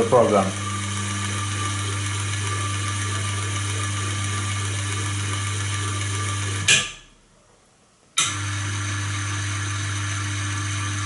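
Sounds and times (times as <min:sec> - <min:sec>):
electric motor hum and whine: 0:00.0 - 0:07.1, 0:08.2 - 0:11.0
sharp click: 0:06.7 - 0:07.0.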